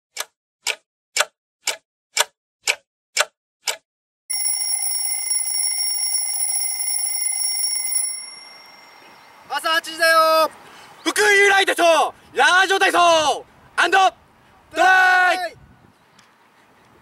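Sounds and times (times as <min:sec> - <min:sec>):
clock ticking: 0:00.1 - 0:03.8
alarm clock ringing: 0:04.3 - 0:09.6.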